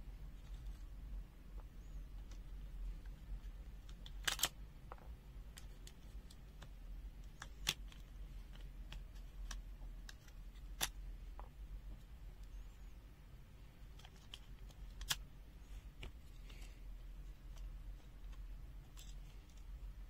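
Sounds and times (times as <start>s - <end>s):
small plastic and metal parts clicking: 1.8s - 11.5s, 13.9s - 15.2s, 17.3s - 19.8s.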